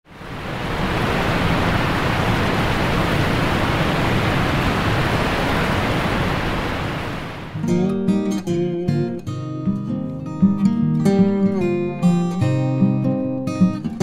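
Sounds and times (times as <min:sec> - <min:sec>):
water rushing over rocks: 0:00.1 - 0:07.6.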